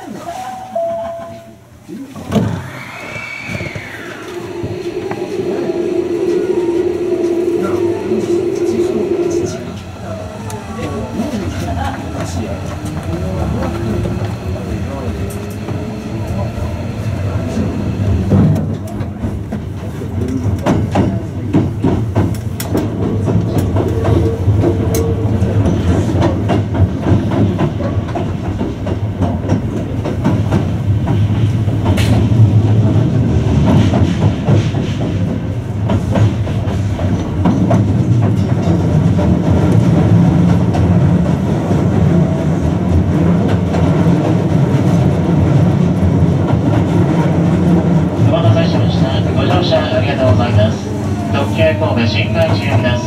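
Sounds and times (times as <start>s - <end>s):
train wheels rumbling on rail: 2.2s - 53.0s
low motor hum: 3.7s - 11.3s.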